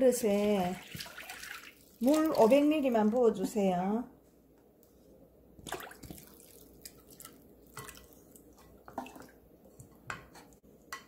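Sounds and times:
liquid sloshing in a bowl: 0.1 - 3.4, 5.6 - 10.6.

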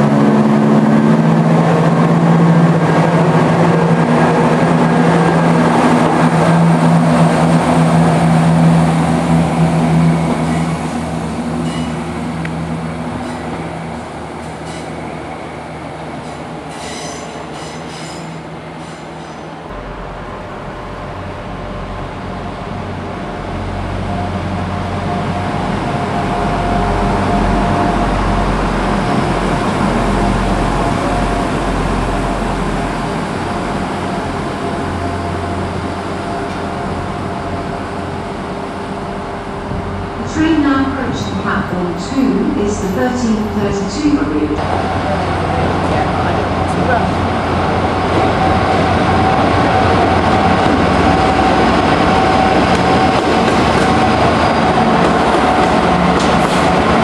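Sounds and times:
diesel train engines running: 0.0 - 57.0
diesel train rumbling past: 0.0 - 57.0
train wheel squeals: 11.6 - 12.0, 16.2 - 19.6.

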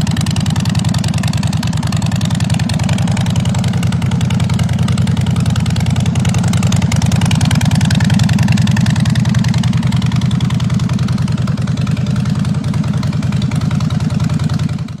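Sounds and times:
motorcycle engine idling: 0.0 - 15.0.

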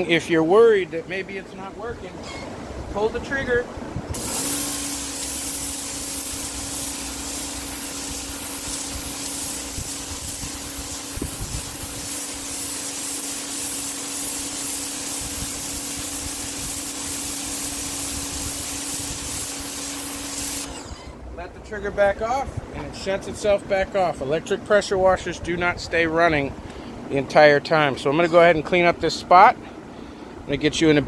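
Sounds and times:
pressure washer pump hum: 2.8 - 21.8
water jet hissing on concrete: 4.1 - 21.1.

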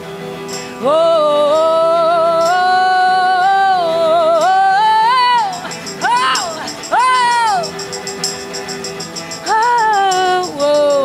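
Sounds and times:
electric guitar chords: 0.0 - 11.0
woman singing long note: 0.8 - 7.7
faint tambourine hits: 5.1 - 11.0.

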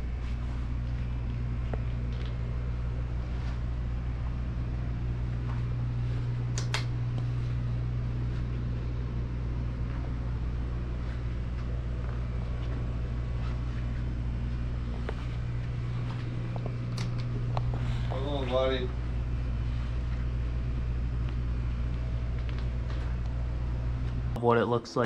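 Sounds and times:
low mechanical hum: 0.0 - 25.0
sharp clicks: 6.5 - 6.9.

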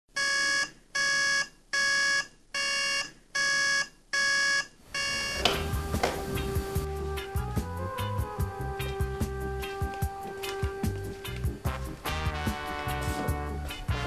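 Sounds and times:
alarm clock beeping: 0.2 - 5.7.

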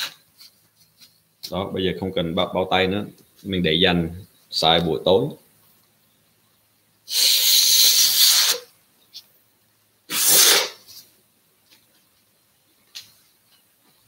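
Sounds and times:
man blowing bursts of breath: 7.1 - 8.7.

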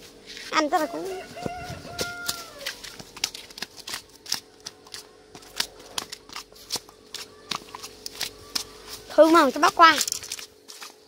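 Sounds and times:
fish slapping on concrete: 1.4 - 9.1, 10.0 - 11.0.

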